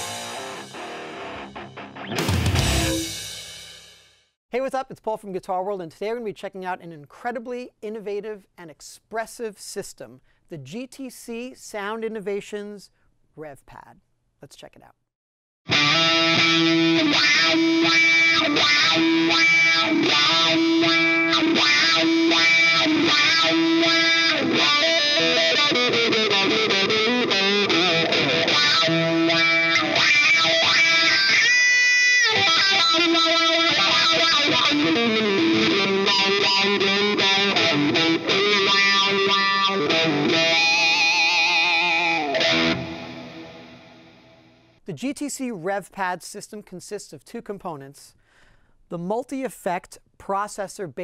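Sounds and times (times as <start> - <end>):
distorted electric guitar riff: 0.0 - 3.9, 15.7 - 44.8.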